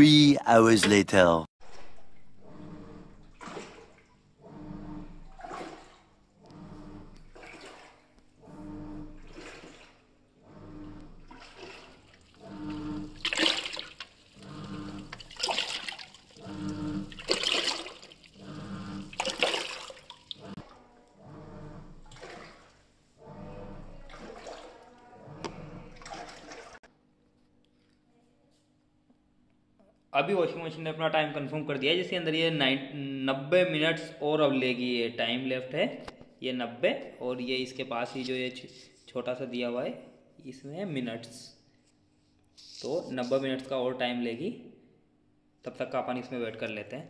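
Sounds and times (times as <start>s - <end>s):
washing machine motor humming: 1.6s - 26.8s
water sloshing in washing machine: 1.6s - 26.9s.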